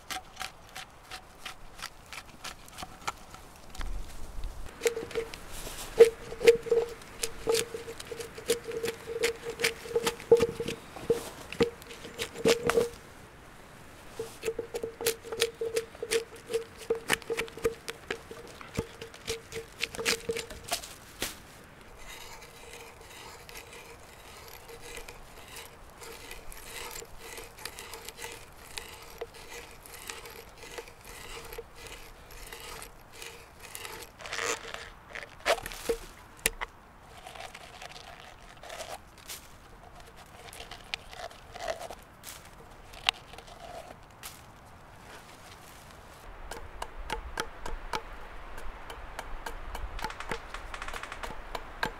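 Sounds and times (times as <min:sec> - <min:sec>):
hatchet chopping a log: 0:14.2 - 0:20.9, 0:46.5 - 0:51.9
auger boring into wood: 0:22.0 - 0:34.8.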